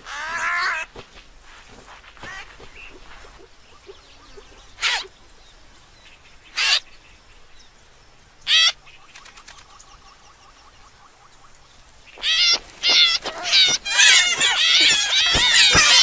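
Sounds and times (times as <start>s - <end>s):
small birds chirping: 0.0s - 16.0s
cartoon piglets squealing: 12.2s - 16.0s.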